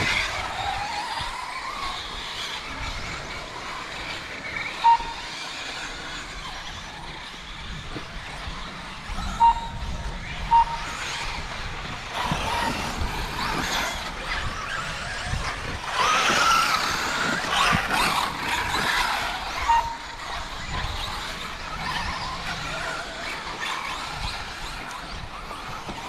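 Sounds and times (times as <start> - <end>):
rc car motors revving: 0.0 - 26.0
tyres on dirt: 0.0 - 26.0
short beep: 4.8 - 5.2, 9.2 - 11.0.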